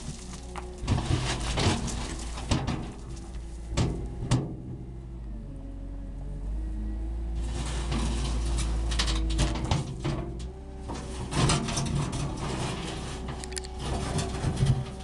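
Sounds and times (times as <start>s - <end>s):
bucket scraping through soil: 0.0s - 3.6s, 7.4s - 10.2s, 10.9s - 15.0s
metal clanks: 0.0s - 4.6s
diesel engine under load: 0.0s - 15.0s.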